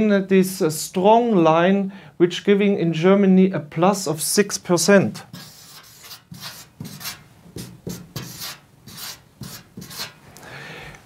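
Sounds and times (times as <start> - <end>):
marker scratching on paper: 5.1 - 10.2.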